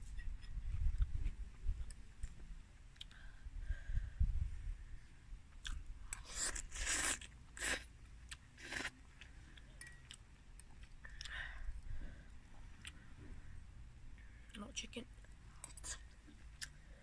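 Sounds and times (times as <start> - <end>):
noodles slurping: 6.2 - 7.9
metal fork ticking in a bowl: 9.8 - 10.7.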